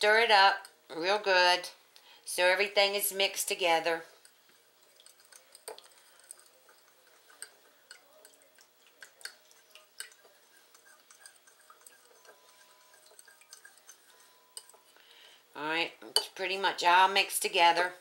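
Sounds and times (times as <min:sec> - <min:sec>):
spoon scraping a ceramic bowl: 0:04.0 - 0:15.0
soft wet liquid sounds: 0:04.0 - 0:15.2.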